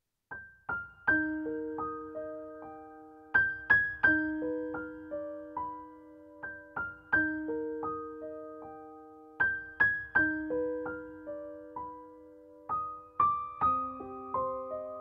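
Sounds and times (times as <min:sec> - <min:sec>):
gentle piano music: 0:00.3 - 0:15.0.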